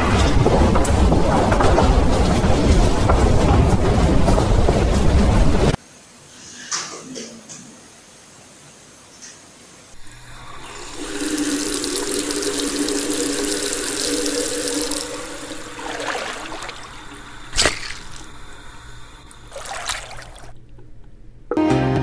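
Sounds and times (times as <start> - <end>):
tap running into wash basin: 10.0 - 18.7, 19.3 - 20.6.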